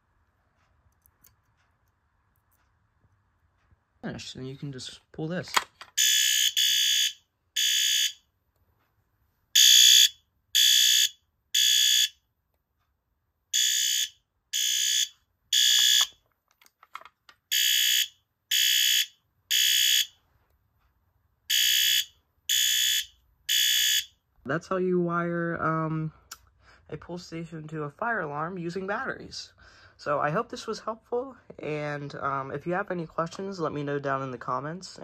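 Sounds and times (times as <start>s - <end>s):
fire alarm horn blasts: 6.0s - 8.3s, 9.6s - 12.2s, 13.5s - 16.1s, 17.5s - 20.2s, 21.5s - 24.2s.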